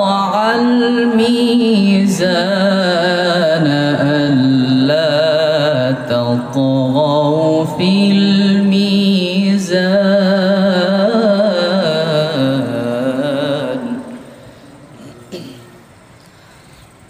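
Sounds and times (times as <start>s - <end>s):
man reciting melodically: 0.0s - 15.6s.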